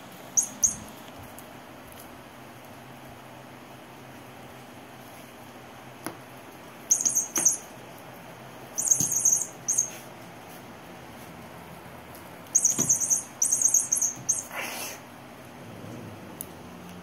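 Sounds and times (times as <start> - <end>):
toy chirping squeaks: 0.4 - 0.8, 6.9 - 7.7, 8.7 - 10.0, 12.5 - 14.5.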